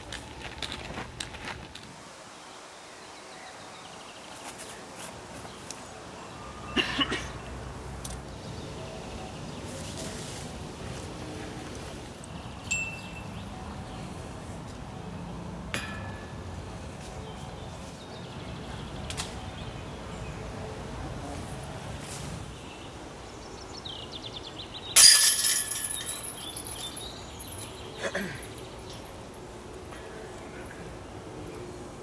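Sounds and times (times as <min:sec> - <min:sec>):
disc crashing into metal chains: 0:25.0 - 0:27.0.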